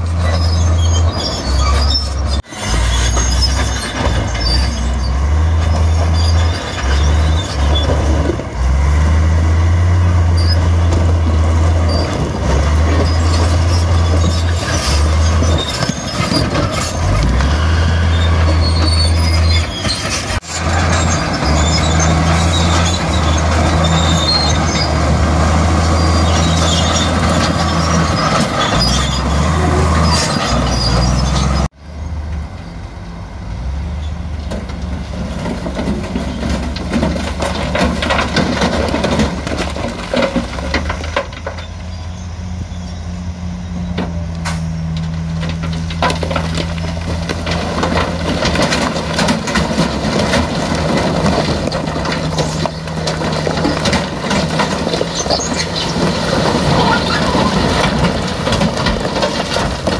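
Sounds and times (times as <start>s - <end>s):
steel tracks squealing: 0.0s - 32.8s, 33.8s - 59.9s
bulldozer diesel engine: 0.0s - 59.9s
stones scraping: 45.5s - 59.9s.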